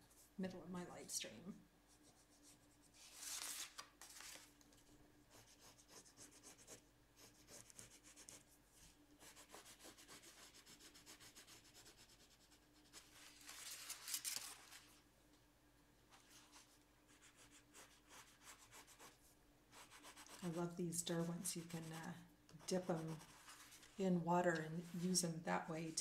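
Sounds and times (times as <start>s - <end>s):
pencil scratching on paper: 5.3s - 8.4s, 9.2s - 13.1s, 16.5s - 20.6s, 22.6s - 24.0s.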